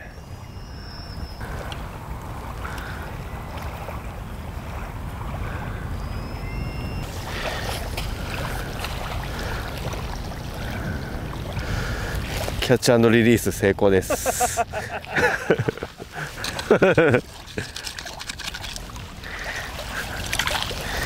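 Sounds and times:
small waves washing on sand: 7.0s - 12.8s, 18.8s - 21.0s.

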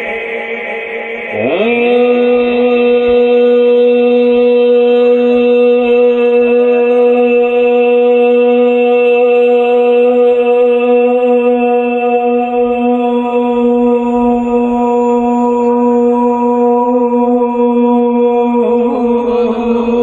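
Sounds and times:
man singing through loudspeakers: 0.0s - 20.0s.

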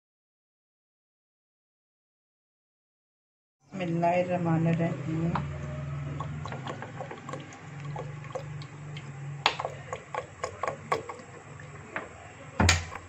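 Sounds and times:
oil pouring with gurgle: 5.4s - 13.0s.

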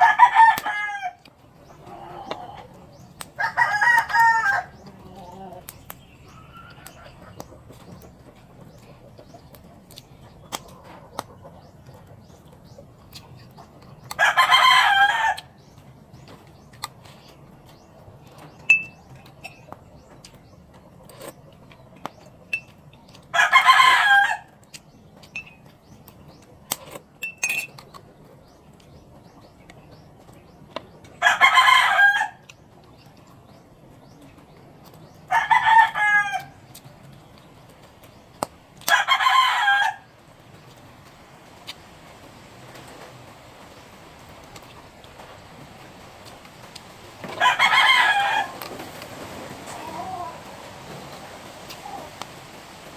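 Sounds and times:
rooster crowing: 0.0s - 1.3s, 3.4s - 4.8s, 14.2s - 15.5s, 23.4s - 24.5s, 31.2s - 32.4s, 35.3s - 36.5s, 38.9s - 40.1s, 47.3s - 48.6s
clicks of eating by hand: 6.7s - 14.2s, 24.6s - 29.0s.

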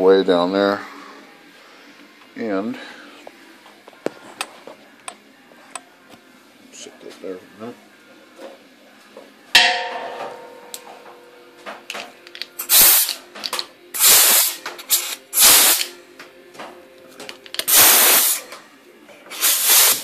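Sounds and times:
metal clank with ring: 9.6s - 11.4s
compressed air hissing: 12.6s - 13.2s, 14.0s - 15.9s, 17.7s - 18.4s, 19.3s - 20.0s.

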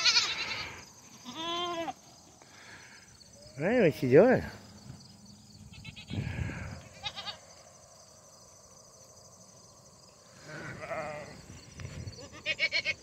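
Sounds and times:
goats bleating: 0.0s - 2.0s, 6.8s - 7.4s, 10.4s - 11.4s, 12.2s - 13.0s.

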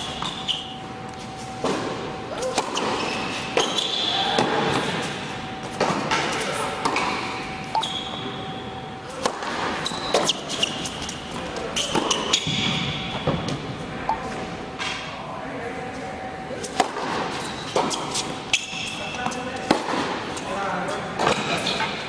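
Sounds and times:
tennis shoes squeaking: 0.0s - 1.6s, 2.4s - 5.0s, 7.0s - 13.2s, 16.8s - 19.7s
tennis ball hitting racket: 9.2s - 11.2s, 16.7s - 18.7s
ball bouncing on court: 11.8s - 13.6s.

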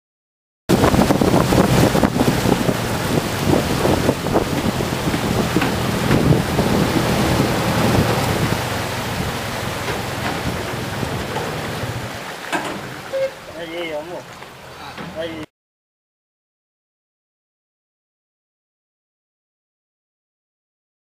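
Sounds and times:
wind buffeting microphone: 0.7s - 13.2s
boat engine running: 0.7s - 15.4s
rushing water: 0.7s - 15.5s.

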